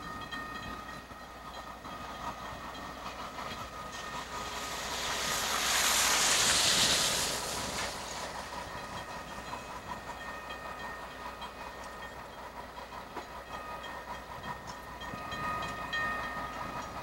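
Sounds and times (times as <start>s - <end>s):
diesel locomotive rumbling past: 0.0s - 17.0s
loud hiss: 3.9s - 9.0s.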